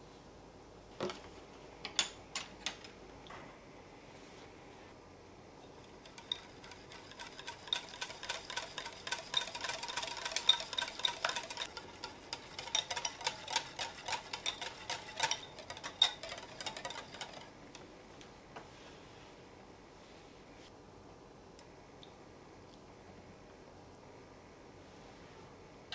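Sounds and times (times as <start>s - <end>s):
wire whisk beating in glass bowl: 5.8s - 17.6s.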